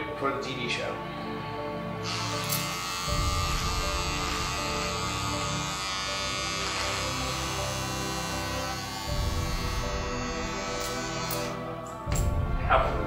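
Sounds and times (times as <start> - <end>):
electric beard trimmer buzzing: 2.0 - 11.7.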